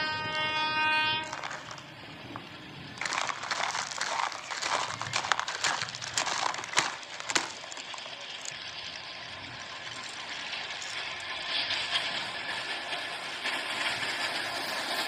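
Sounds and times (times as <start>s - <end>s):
brick chunks clattering: 1.2s - 8.8s, 9.8s - 11.4s.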